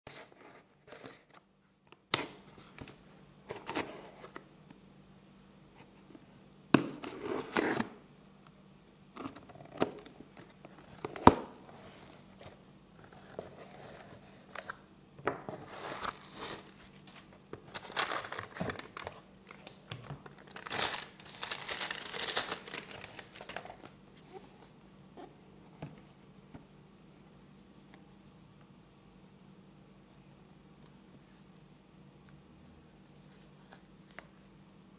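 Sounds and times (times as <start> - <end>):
plastic packaging crinkling: 15.6 - 24.0.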